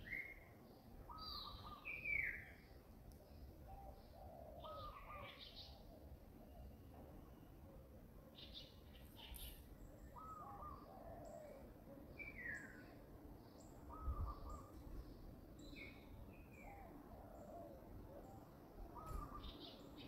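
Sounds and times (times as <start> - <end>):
low background noise: 0.0 - 20.0.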